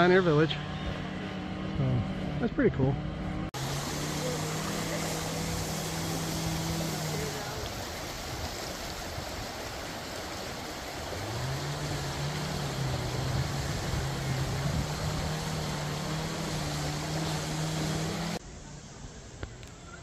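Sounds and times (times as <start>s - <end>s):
low motor hum: 0.0s - 18.4s
creek rushing over rocks: 3.6s - 18.4s.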